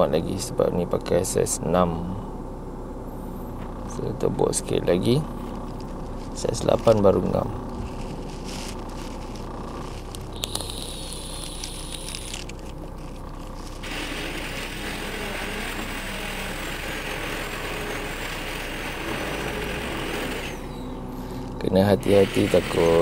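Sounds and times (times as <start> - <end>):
power drill whine: 9.3 - 12.7, 13.7 - 23.0
drill bit cutting metal: 10.3 - 12.5, 13.8 - 20.9, 21.9 - 23.0.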